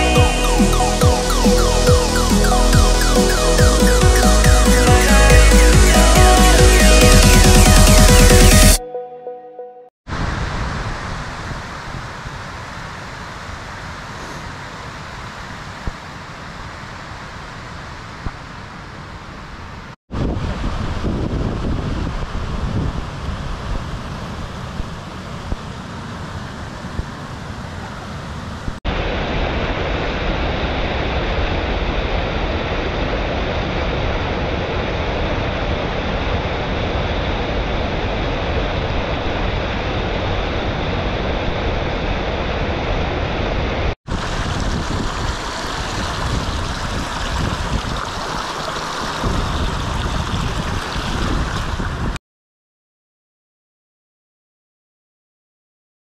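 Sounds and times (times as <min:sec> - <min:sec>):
wind gusts on microphone: 0:10.1 - 0:14.8, 0:20.1 - 0:52.2
stream rushing over rocks: 0:44.1 - 0:52.1.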